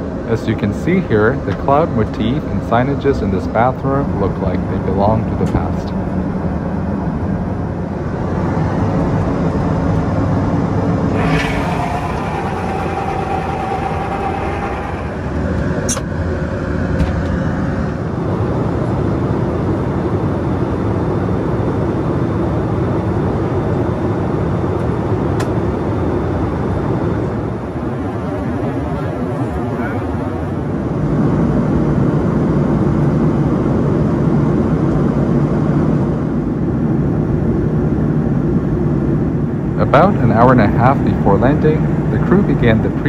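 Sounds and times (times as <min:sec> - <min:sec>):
airliner cabin rumble: 0:00.0 - 0:43.0.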